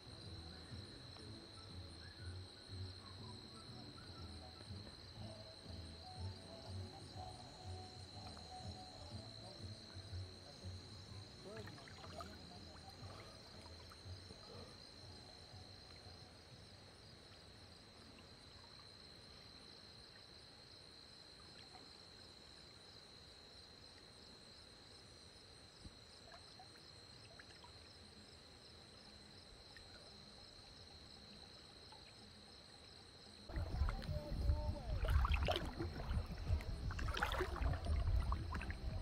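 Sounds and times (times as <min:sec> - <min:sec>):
high-pitched insect chorus: 0:22.2 - 0:39.0.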